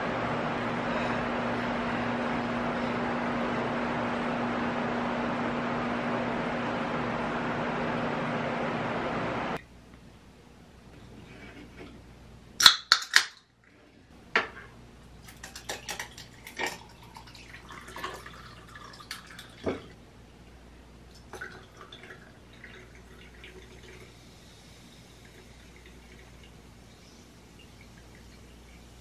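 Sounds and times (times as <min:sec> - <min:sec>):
sparkling water fizzing: 0:15.2 - 0:19.8, 0:21.1 - 0:29.0
juice pouring into glass: 0:15.3 - 0:19.7, 0:21.1 - 0:26.6.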